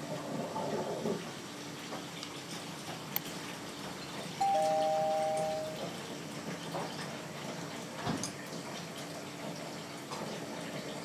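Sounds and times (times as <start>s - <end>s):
water running from tap: 1.3s - 11.0s
electronic two-note chime: 4.4s - 5.9s.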